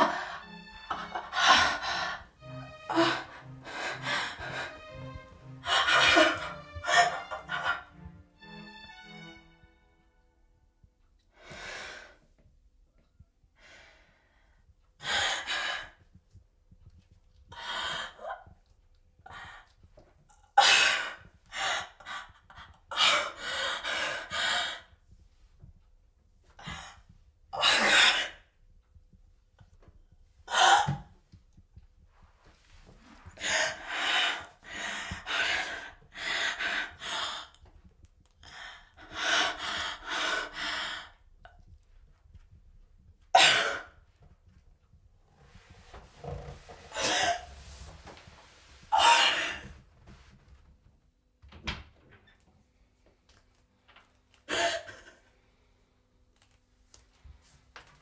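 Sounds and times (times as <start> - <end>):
woman gasping and breathing hard: 0.0 - 8.1.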